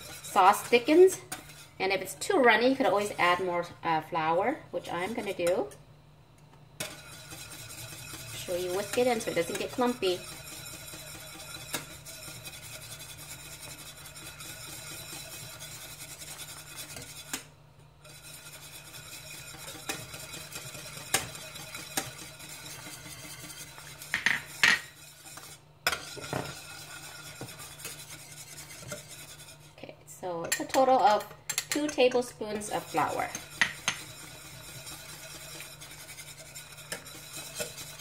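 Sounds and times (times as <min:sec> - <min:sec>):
whisk swishing in sauce: 0:00.0 - 0:03.5, 0:04.8 - 0:05.7, 0:06.8 - 0:29.8, 0:30.5 - 0:38.0
whisk wires clinking on pan: 0:06.8 - 0:17.4, 0:18.9 - 0:28.0, 0:30.4 - 0:38.0.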